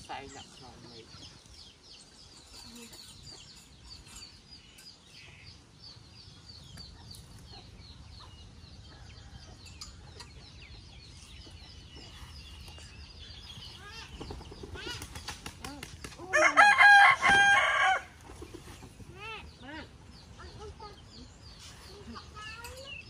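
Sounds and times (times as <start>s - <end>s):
chickens peeping: 0.0s - 16.2s.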